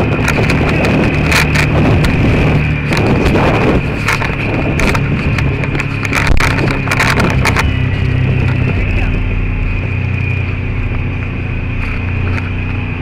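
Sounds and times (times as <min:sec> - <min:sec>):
sharp clicks and rattles: 0:00.0 - 0:13.0
utility vehicle engine running: 0:00.0 - 0:13.0
wind noise: 0:00.0 - 0:13.0.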